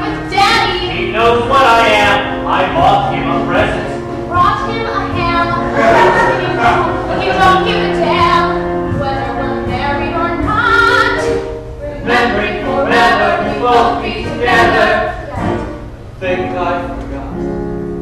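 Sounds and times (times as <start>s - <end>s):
group singing in harmony: 5.4s - 16.0s.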